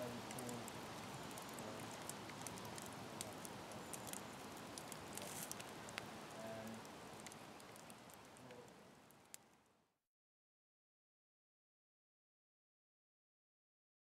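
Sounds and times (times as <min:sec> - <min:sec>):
campfire crackling: 0:00.0 - 0:09.9.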